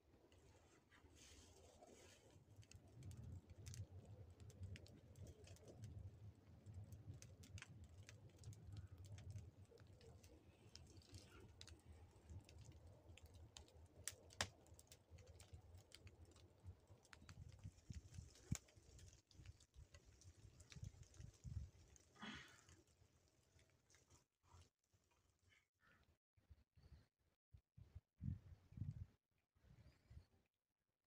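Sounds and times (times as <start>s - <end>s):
dry reeds crackling in fire: 0.2s - 24.7s
sharp crack of fire: 1.6s - 23.7s.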